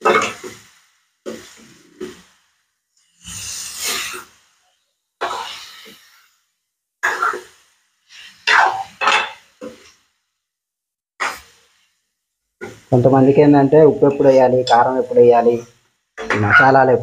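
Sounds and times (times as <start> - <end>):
chicken frying: 0.0 - 10.2, 11.2 - 17.0.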